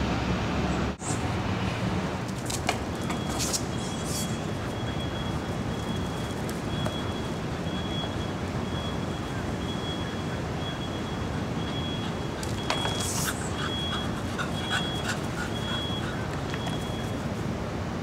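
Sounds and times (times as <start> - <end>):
reversing alarm beeping: 3.0 - 17.3.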